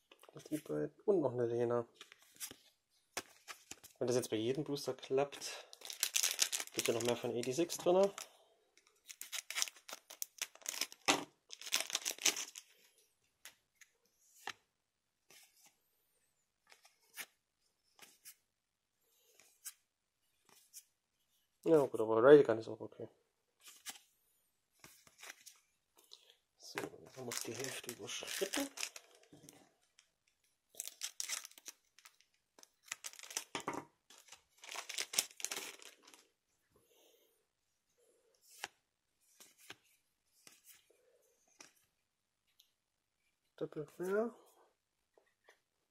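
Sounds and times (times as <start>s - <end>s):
wrapper crinkling as torn open: 5.8s - 8.2s, 9.0s - 12.6s, 27.2s - 29.3s, 30.8s - 33.6s, 34.2s - 36.2s.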